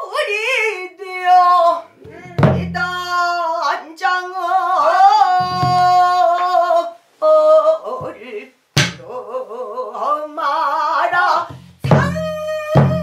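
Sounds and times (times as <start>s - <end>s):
woman singing quavering notes: 0.0s - 13.0s
low drum thud: 2.1s - 3.0s, 8.8s - 9.0s.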